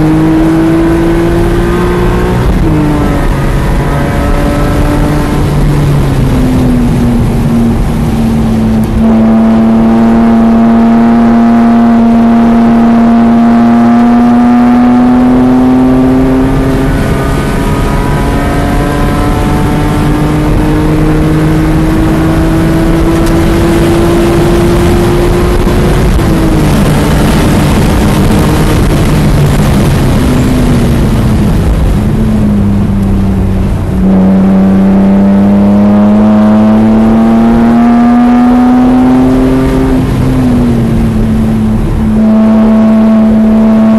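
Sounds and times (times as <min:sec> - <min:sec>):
car engine at full throttle: 0:00.0 - 0:43.9.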